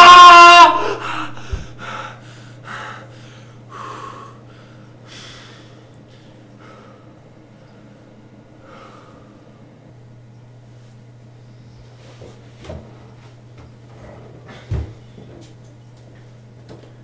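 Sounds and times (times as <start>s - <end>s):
steady low hum: 0.0s - 17.0s
man gasping breaths: 0.8s - 7.2s, 8.6s - 9.6s.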